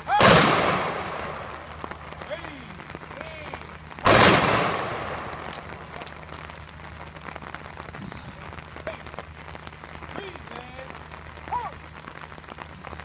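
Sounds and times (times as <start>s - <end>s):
rifle volley crack with echo: 0.0s - 6.6s.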